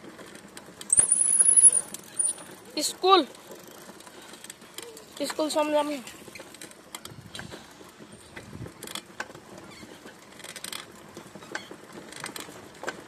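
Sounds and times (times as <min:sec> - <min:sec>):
bicycle rolling on road: 0:00.0 - 0:13.0
small rattles and clicks: 0:00.0 - 0:13.0.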